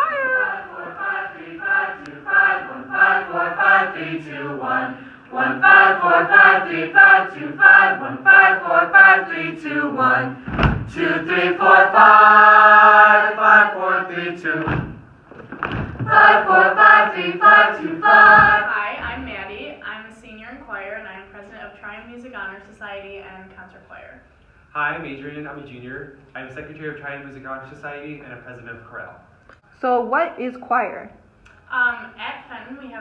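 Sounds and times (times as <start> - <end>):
choir singing vocal warm-up: 0.0 - 15.0, 16.0 - 19.6
low bumps: 10.4 - 11.5, 14.4 - 19.9.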